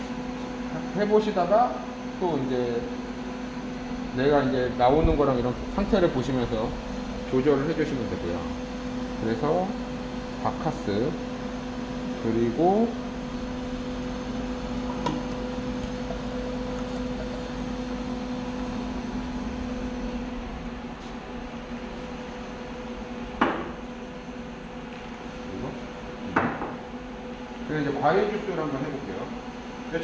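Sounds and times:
ice machine humming: 0:00.7 - 0:30.0
sharp knocks: 0:23.4 - 0:23.8, 0:26.3 - 0:26.8.

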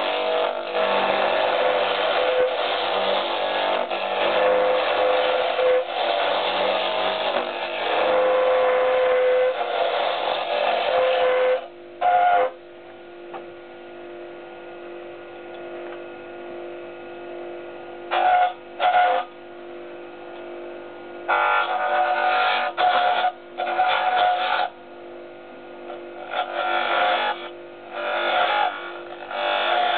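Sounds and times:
lathe motor hum: 0:00.0 - 0:12.5, 0:21.2 - 0:24.8, 0:26.2 - 0:29.9
lathe tool cutting wood: 0:00.0 - 0:12.5, 0:18.1 - 0:19.3, 0:21.3 - 0:24.8, 0:26.2 - 0:29.9.

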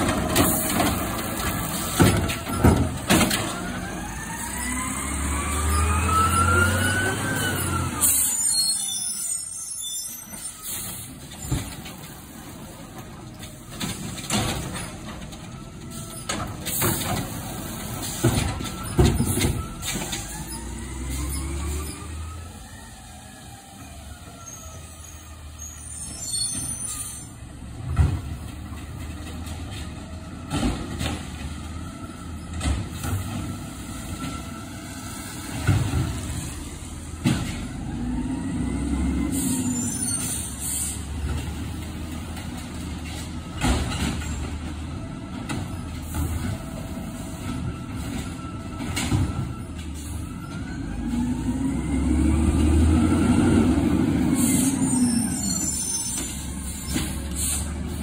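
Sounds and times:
bins knocking and banging: 0:00.0 - 0:03.6
diesel engine revving: 0:00.0 - 0:08.6, 0:14.8 - 0:24.2, 0:28.6 - 0:43.6, 0:44.2 - 0:58.0
air brake hiss: 0:39.3 - 0:41.1, 0:54.3 - 0:58.0.

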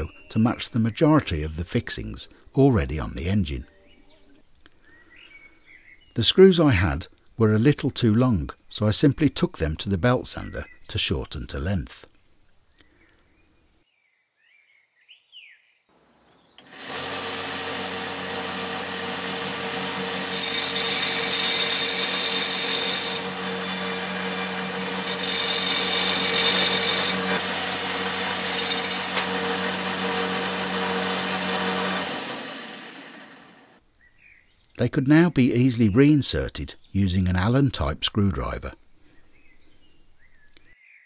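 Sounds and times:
belt sander grinding screws: 0:16.6 - 0:33.8.

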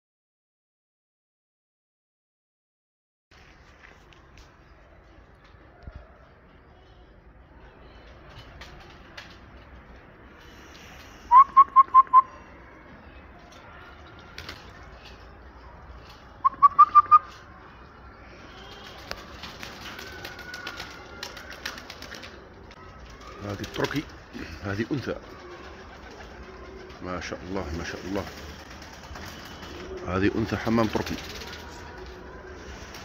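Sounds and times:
person whistling short notes: 0:11.3 - 0:12.3.

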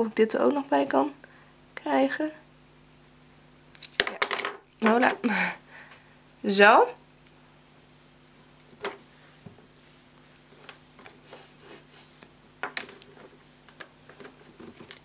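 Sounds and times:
faint steady hum: 0:00.0 - 0:15.0
soft rubbing: 0:07.5 - 0:12.3.

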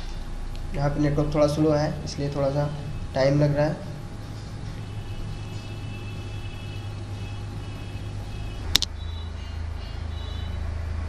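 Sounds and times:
low background rumble: 0:00.0 - 0:10.5
sharp click: 0:08.7 - 0:08.9.

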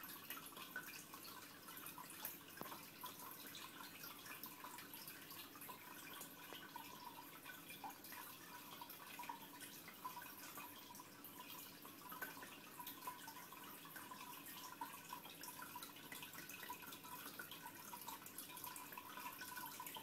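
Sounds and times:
aquarium water bubbling: 0:00.0 - 0:20.0.

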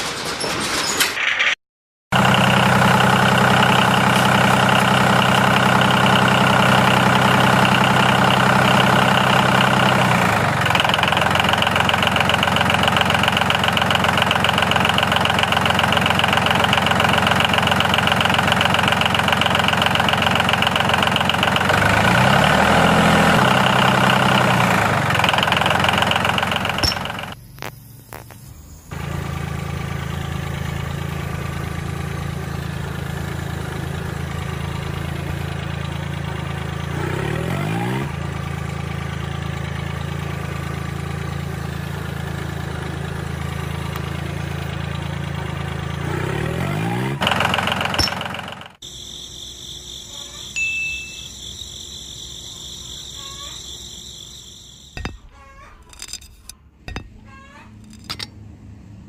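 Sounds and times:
motor running: 0:02.2 - 0:27.4, 0:28.9 - 0:48.8.

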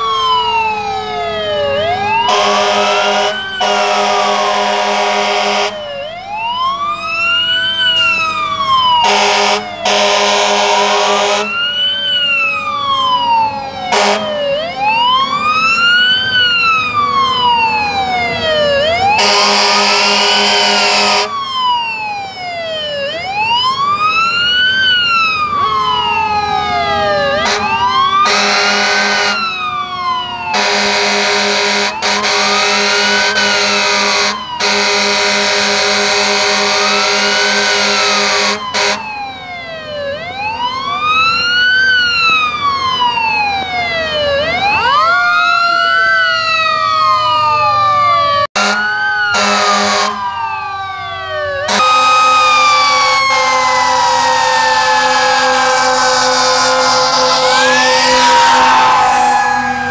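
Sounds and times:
fire engine sirens wailing: 0:00.0 - 0:59.9
fire truck air horn blasts: 0:02.2 - 0:05.8, 0:09.0 - 0:11.7, 0:13.9 - 0:14.4, 0:19.1 - 0:21.4, 0:27.3 - 0:29.6, 0:30.5 - 0:39.1, 0:48.5 - 0:50.3, 0:51.6 - 0:59.9.

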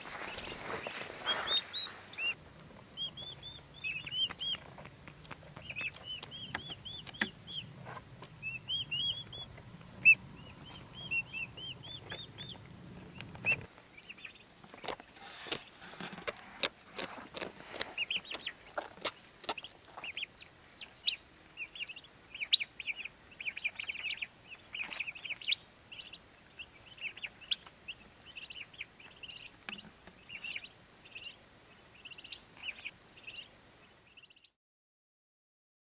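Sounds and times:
turkey chicks peeping: 0:00.0 - 0:34.6
sharp clicks and rustles: 0:14.6 - 0:19.9.

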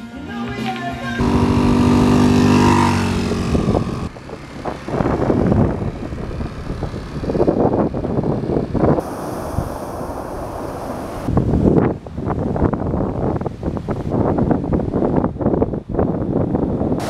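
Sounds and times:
scooter engine running: 0:01.2 - 0:09.0
wind buffeting microphone: 0:01.2 - 0:17.0.

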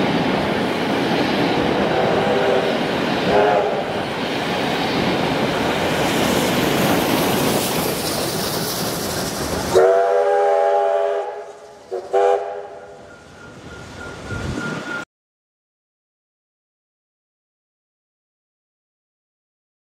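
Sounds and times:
train carriages rumbling on rails: 0:00.0 - 0:15.0
steam locomotive whistle: 0:01.8 - 0:03.9, 0:09.7 - 0:15.0.

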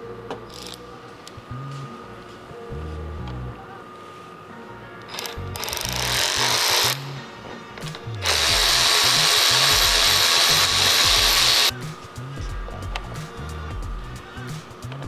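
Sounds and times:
cordless ratchet running: 0:05.1 - 0:07.0, 0:08.2 - 0:11.7.

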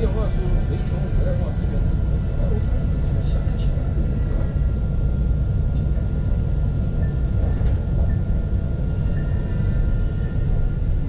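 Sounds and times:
tram wheels rumbling on rails: 0:00.0 - 0:11.0.

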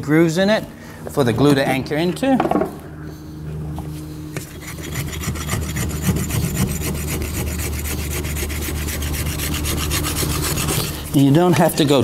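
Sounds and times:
rasp scraping hoof: 0:04.4 - 0:11.3.

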